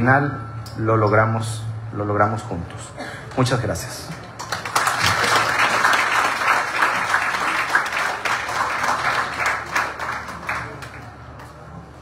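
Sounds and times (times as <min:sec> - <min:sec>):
audience applause: 0:04.4 - 0:11.4.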